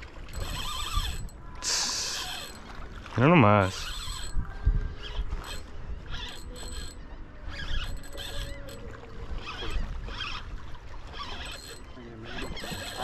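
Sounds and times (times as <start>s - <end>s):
wind rumble on microphone: 0.0s - 1.7s, 3.8s - 11.3s
fishing reel cranking: 0.3s - 2.6s, 3.6s - 10.5s, 11.1s - 13.0s.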